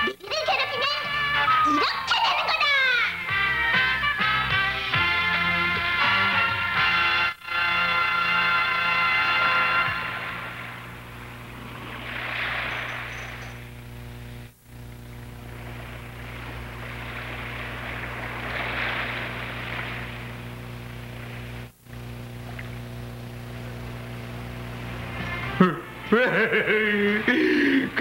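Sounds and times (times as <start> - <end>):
steady low hum: 3.2 - 28.0
sea waves washing in: 8.7 - 25.3.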